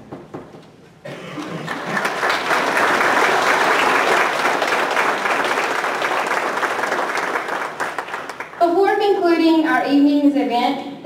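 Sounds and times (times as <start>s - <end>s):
audience applauding: 1.3s - 8.6s.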